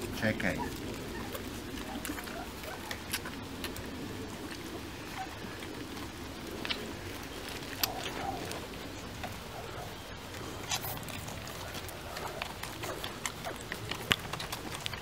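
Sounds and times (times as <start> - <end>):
puppies suckling smacking clicks: 0.0 - 15.0
faint puppy squeaks: 0.5 - 3.0.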